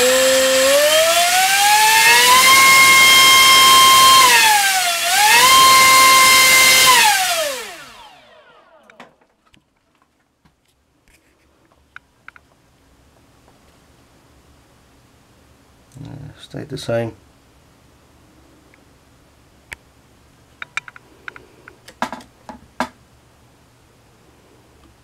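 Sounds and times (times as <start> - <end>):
electric motor propeller whine: 0.0 - 9.0.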